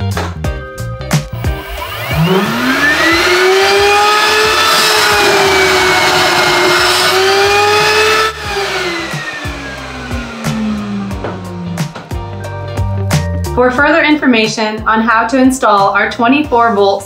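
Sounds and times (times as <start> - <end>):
blower motor whining: 1.2 - 13.0.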